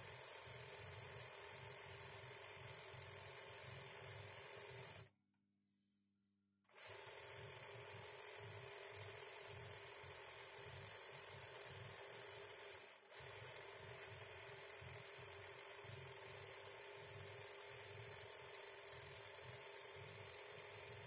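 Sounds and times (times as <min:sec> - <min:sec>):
embroidery sewing machine whirring: 0:00.0 - 0:05.1, 0:06.7 - 0:21.0.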